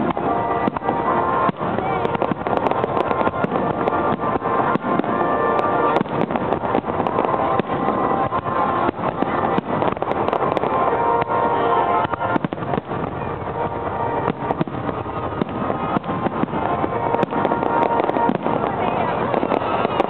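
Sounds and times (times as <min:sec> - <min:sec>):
fireworks bursting: 0:00.0 - 0:20.0.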